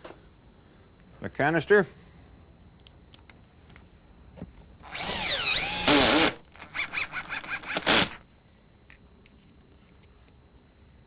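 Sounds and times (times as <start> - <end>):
cordless drill whining: 4.8 - 8.2
drill clutch pulsing: 4.8 - 8.2.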